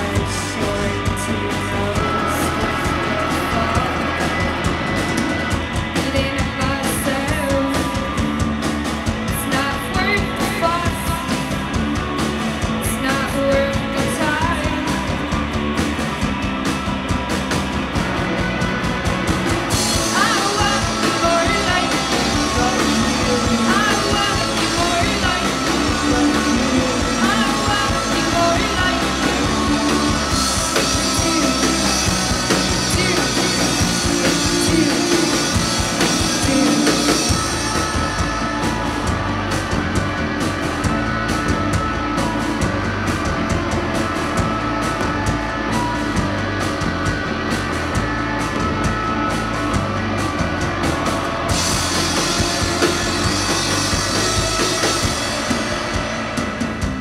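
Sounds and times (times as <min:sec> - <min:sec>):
drum kit: 0:00.0 - 0:57.0
electric bass: 0:00.0 - 0:57.0
electric guitar: 0:00.0 - 0:57.0
woman singing: 0:06.0 - 0:08.2, 0:09.3 - 0:11.5, 0:12.8 - 0:15.2, 0:20.0 - 0:38.3.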